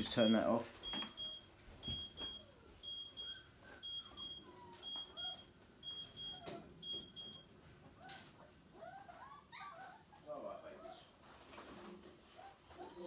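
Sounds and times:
electronic alarm beeping: 0.8 - 7.5.

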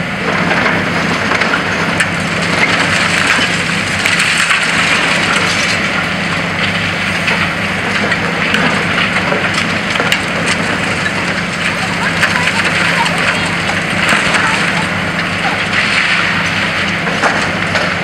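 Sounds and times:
excavator diesel engines running: 0.0 - 18.0
concrete cracking and crunching: 0.2 - 18.0.

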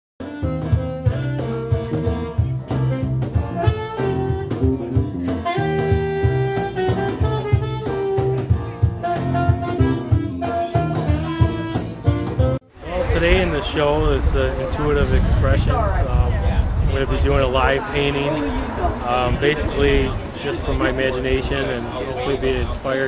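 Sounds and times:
drum kit: 0.2 - 12.6
saxophone: 0.2 - 12.7
walking bass line: 0.2 - 17.2.

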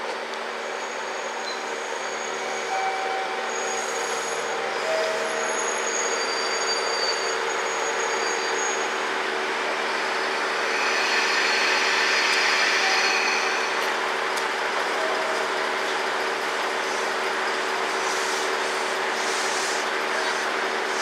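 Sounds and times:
hiss: 17.8 - 21.0.

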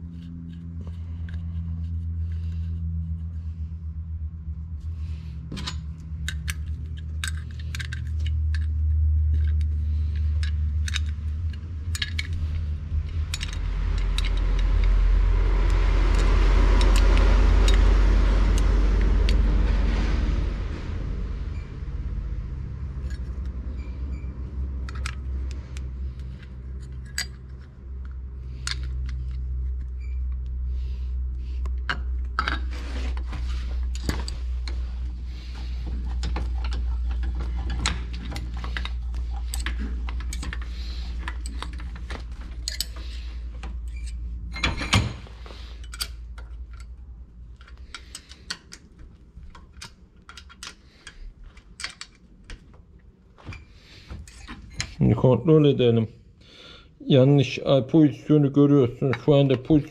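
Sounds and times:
steady low hum: 0.0 - 59.9
wrench clinking on metal: 9.3 - 14.7, 24.8 - 27.7, 36.1 - 41.9, 42.5 - 43.2, 43.8 - 47.0.

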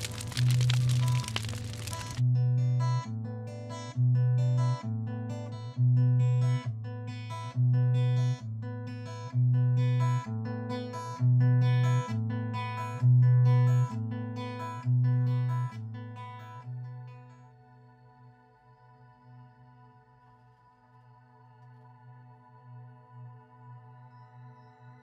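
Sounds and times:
low bass alternating notes: 0.0 - 10.6.

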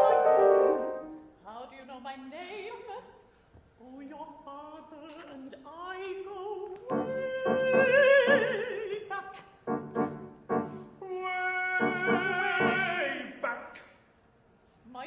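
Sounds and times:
piano accompaniment: 0.0 - 1.3, 6.9 - 8.6, 9.7 - 11.0, 11.8 - 13.0
operatic singing: 6.8 - 13.8.

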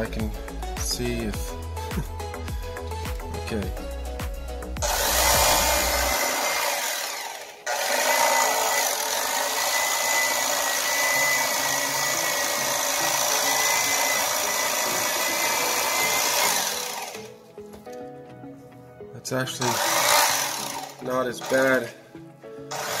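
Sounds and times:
electric knife motor whining: 4.8 - 17.4, 19.6 - 22.0, 22.7 - 23.0.

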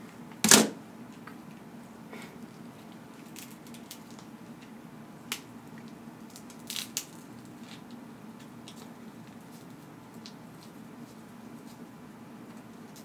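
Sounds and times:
crab shells cracking: 3.1 - 4.7, 5.3 - 10.8.

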